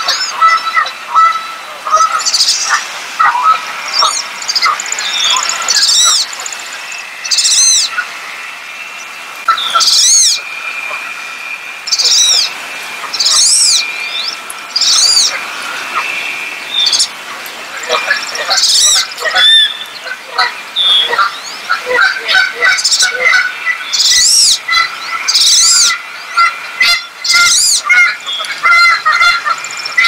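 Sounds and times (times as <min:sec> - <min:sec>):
duck squealing whistles: 0:09.5 - 0:11.0, 0:11.9 - 0:12.5, 0:13.1 - 0:15.4, 0:17.9 - 0:30.0.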